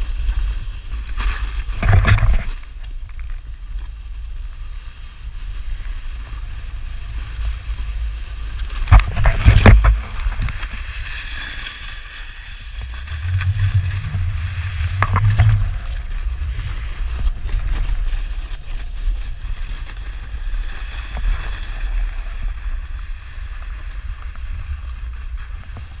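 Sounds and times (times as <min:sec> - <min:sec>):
snowboard sliding on icy snow: 0:00.0 - 0:26.0
wind buffeting microphone: 0:12.3 - 0:26.0.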